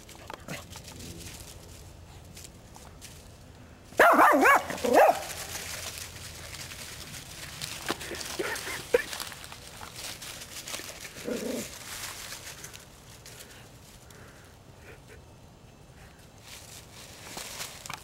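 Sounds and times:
footsteps on dry leaves: 0:00.0 - 0:14.1, 0:16.4 - 0:18.0
dog barking and yelping: 0:04.0 - 0:05.3.

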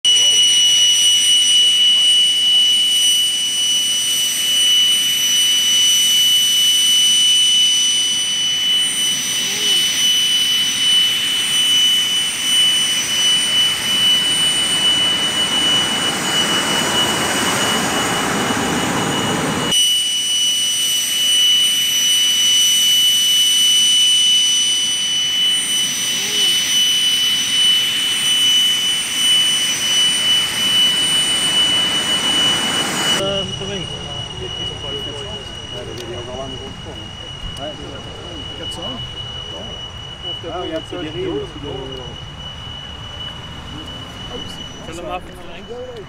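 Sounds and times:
jet engines whining: 0:00.0 - 0:46.0
rushing noise: 0:25.5 - 0:46.0.

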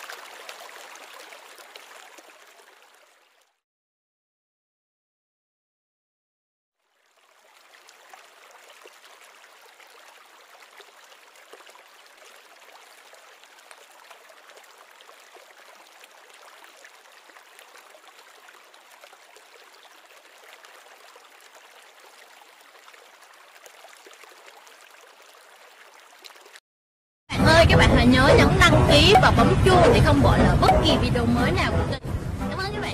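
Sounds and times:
water trickling and bubbling: 0:00.0 - 0:03.6, 0:06.8 - 0:26.6.

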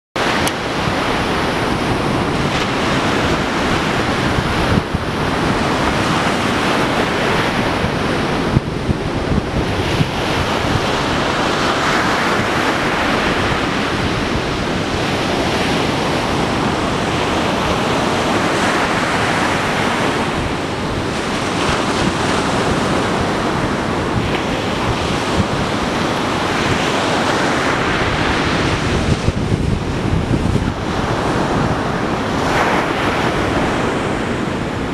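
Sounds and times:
surf washing onto beach: 0:00.2 - 0:34.9
wind buffeting microphone: 0:00.2 - 0:34.9.

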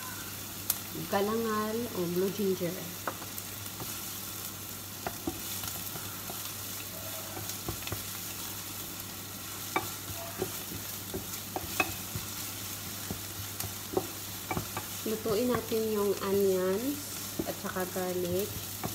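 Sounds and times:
onion and garlic sizzling in oil: 0:00.0 - 0:18.9
wooden utensil tapping pan: 0:05.0 - 0:06.6, 0:07.2 - 0:08.2, 0:09.7 - 0:18.9.

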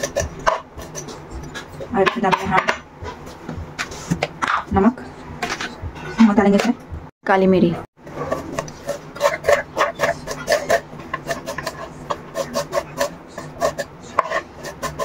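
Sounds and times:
hands scraping food on board: 0:00.0 - 0:04.2, 0:08.1 - 0:15.0.

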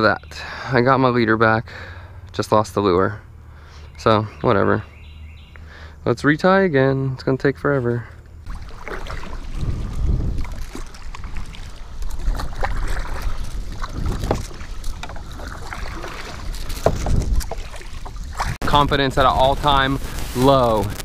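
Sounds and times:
paddle splashing water: 0:08.4 - 0:20.5
wind rumble on microphone: 0:08.5 - 0:21.0.

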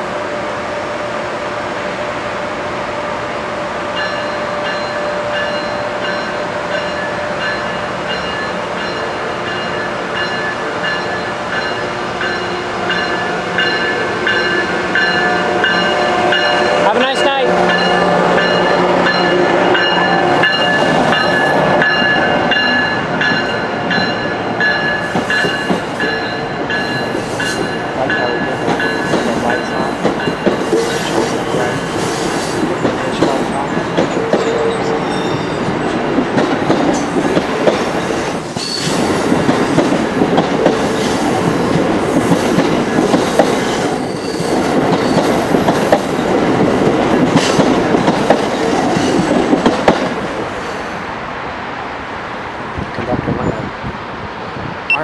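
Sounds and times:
electric locomotive whine: 0:00.0 - 0:55.0
train wheels clicking and clattering: 0:06.2 - 0:50.8
high wheel squeal: 0:34.1 - 0:35.8.

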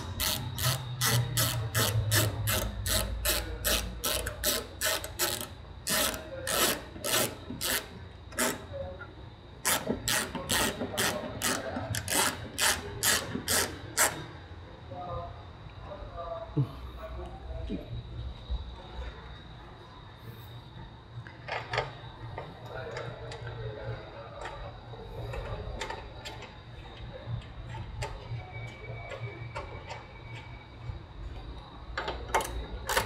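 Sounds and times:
ratchet clicking: 0:00.0 - 0:08.7, 0:09.6 - 0:14.3.

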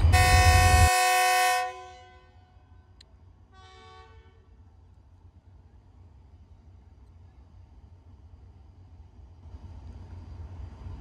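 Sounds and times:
locomotive horn blast: 0:00.0 - 0:04.6
low steady rumble: 0:00.0 - 0:11.0.

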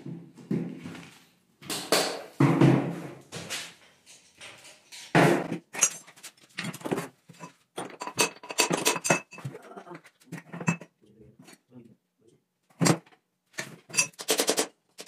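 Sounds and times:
metal tools clanking: 0:05.7 - 0:09.5, 0:13.6 - 0:14.3.

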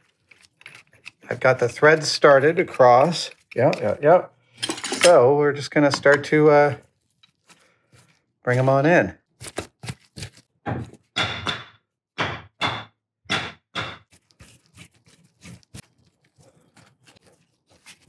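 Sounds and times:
metal clinks and knocks: 0:04.6 - 0:05.2.

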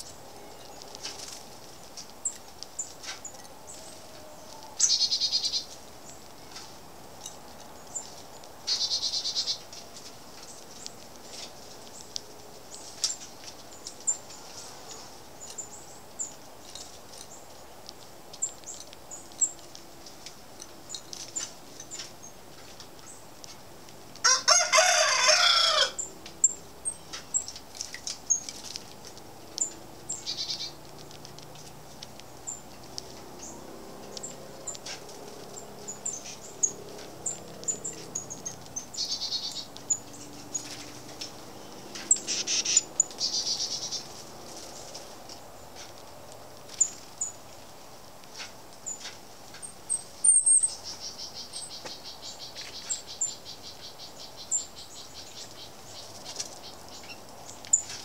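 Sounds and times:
garden birds chirping: 0:00.0 - 0:58.0
drawn-out bird call: 0:03.7 - 0:05.7, 0:08.7 - 0:09.7, 0:29.4 - 0:44.4
buzzy bird trills: 0:29.6 - 0:30.8, 0:35.8 - 0:41.2, 0:42.0 - 0:44.1.

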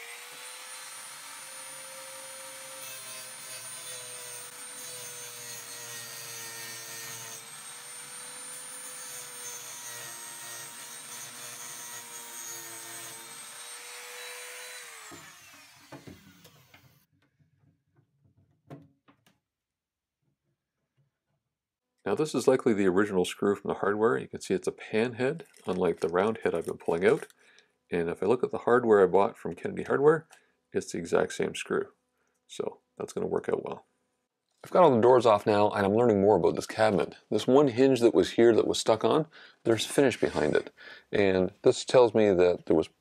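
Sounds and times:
rotary tool whining: 0:00.0 - 0:17.1.

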